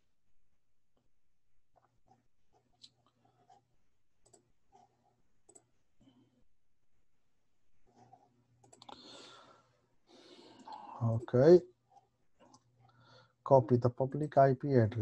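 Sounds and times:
computer mouse clicks: 4.2s - 5.7s, 8.0s - 9.0s.

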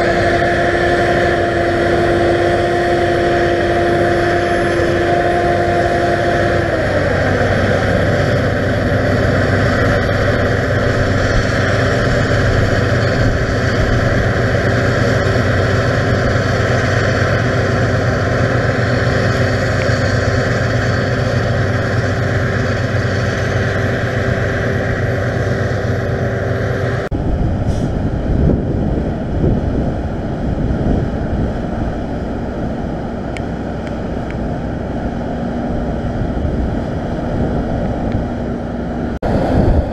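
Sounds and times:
machine whine falling in pitch: 0.0s - 27.3s
combine harvester drone: 0.0s - 39.9s
tractor engine noise: 0.0s - 39.9s.

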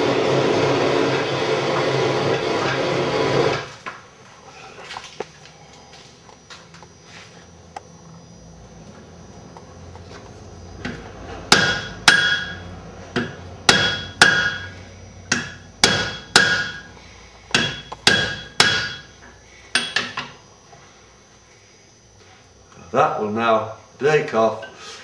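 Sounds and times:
hammer striking iron on anvil: 11.5s - 12.6s, 13.2s - 16.9s, 17.5s - 19.1s, 19.7s - 20.4s.

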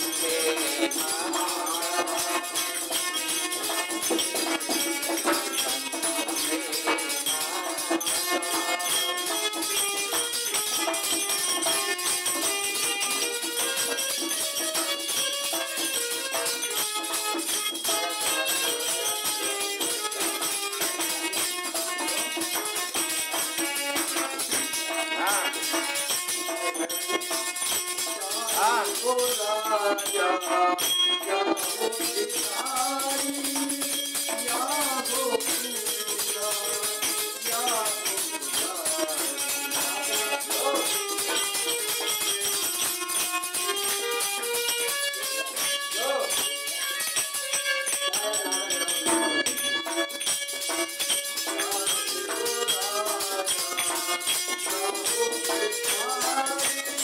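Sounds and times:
man singing devotional song: 0.0s - 10.0s, 17.4s - 21.0s, 21.9s - 42.2s, 45.9s - 47.2s, 48.1s - 57.0s
hand drum beat: 0.0s - 57.0s
harmonium chords: 0.0s - 57.0s
jingling hand cymbals: 0.0s - 57.0s.

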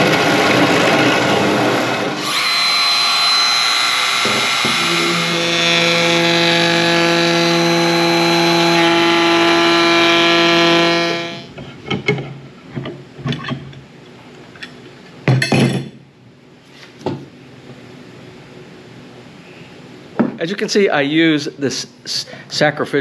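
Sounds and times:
electric wood router running: 0.0s - 11.5s.

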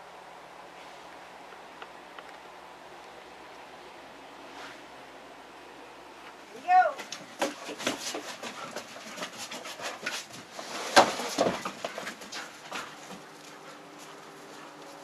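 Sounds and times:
dog claws clattering on wooden deck: 7.0s - 14.2s.

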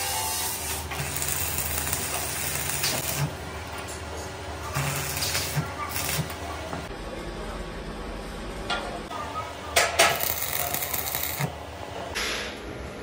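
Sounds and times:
welding arc crackling: 0.0s - 3.4s, 4.7s - 6.4s, 10.0s - 11.6s.

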